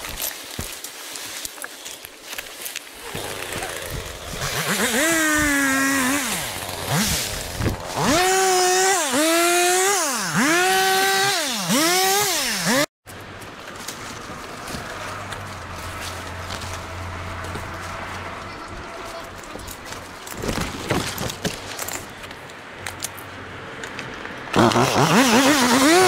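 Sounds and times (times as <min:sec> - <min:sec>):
chainsaw revving: 0:03.0 - 0:12.9, 0:24.5 - 0:26.0.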